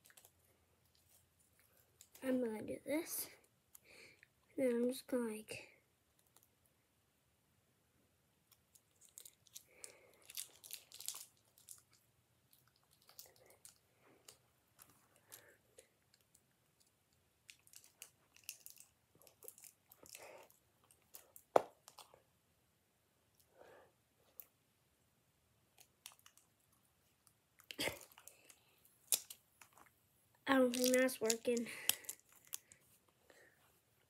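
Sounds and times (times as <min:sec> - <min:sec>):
plastic pieces rustling: 0:08.7 - 0:15.4, 0:17.5 - 0:22.1, 0:30.5 - 0:32.8.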